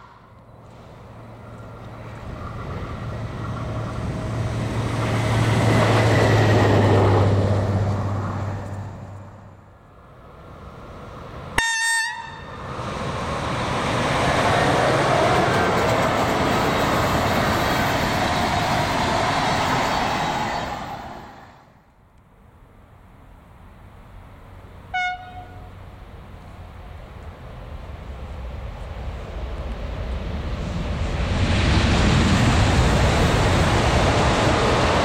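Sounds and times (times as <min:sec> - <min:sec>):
diesel locomotive engine hum: 0:00.0 - 0:35.0
train wheel and rail noise: 0:00.0 - 0:35.0
locomotive horn toot: 0:11.6 - 0:12.6, 0:24.9 - 0:25.8.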